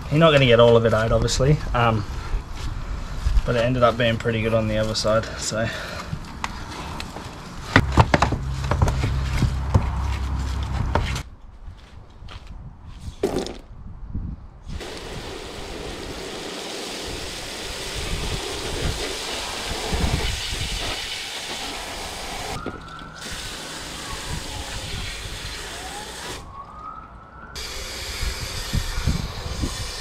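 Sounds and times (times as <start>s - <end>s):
hose spraying water: 14.8s - 22.6s, 23.2s - 26.5s, 27.6s - 30.0s.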